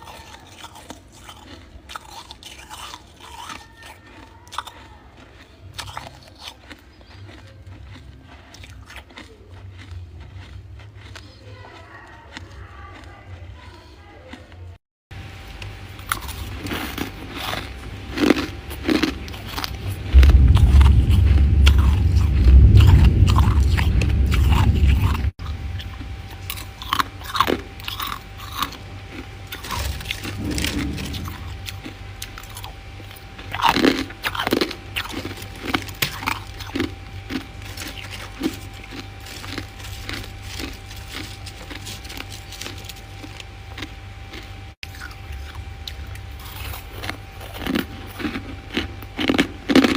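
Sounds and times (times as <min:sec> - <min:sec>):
frost being chewed: 0:00.0 - 0:14.8, 0:15.4 - 0:49.9
heavy low rumble: 0:15.1 - 0:49.9.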